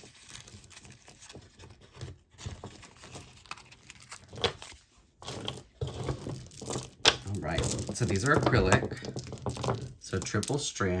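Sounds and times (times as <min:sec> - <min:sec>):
paper crinkling and tearing: 0:00.0 - 0:07.5
plastic beads clicking: 0:05.3 - 0:10.7.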